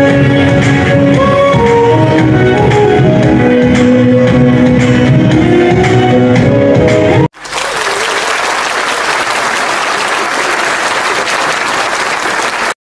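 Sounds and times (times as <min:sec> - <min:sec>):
music: 0:00.0 - 0:07.3
audience applauding: 0:07.3 - 0:12.8.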